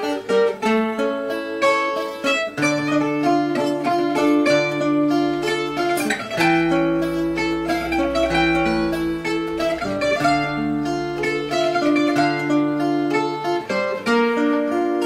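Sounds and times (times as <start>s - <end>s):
classical guitar accompaniment: 0.0s - 15.0s
plucked guitar melody: 0.0s - 15.0s.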